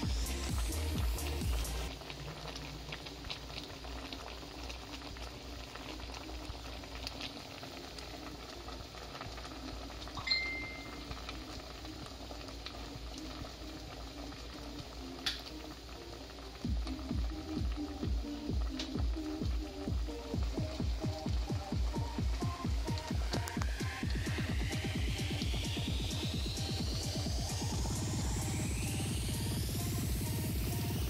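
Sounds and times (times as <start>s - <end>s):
water boiling and bubbling: 0.0s - 31.0s
short high tone: 10.2s - 11.0s.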